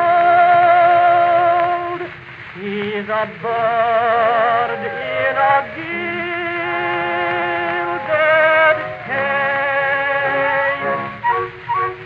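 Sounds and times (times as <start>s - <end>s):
male tenor singing a ballad: 0.0s - 11.2s
instrumental accompaniment: 4.1s - 12.0s.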